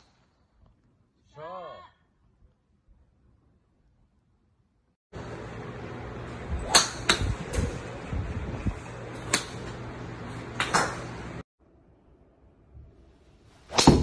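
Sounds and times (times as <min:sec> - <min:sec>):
steady background hum: 0:05.2 - 0:14.0
golf club striking ball: 0:06.6 - 0:07.3, 0:09.3 - 0:09.7, 0:13.7 - 0:14.0.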